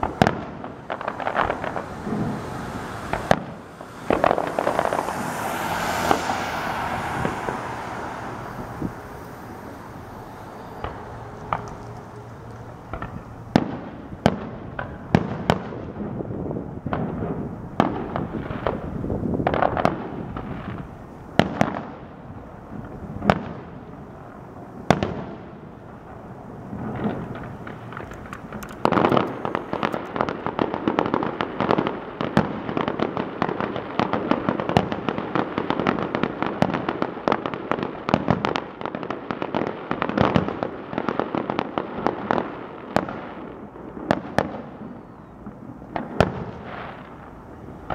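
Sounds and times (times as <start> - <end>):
rapid firework pops and cracks: 0.0 - 5.2, 10.3 - 20.8, 26.7 - 47.9
firework shells bursting: 0.0 - 13.8, 26.9 - 30.3.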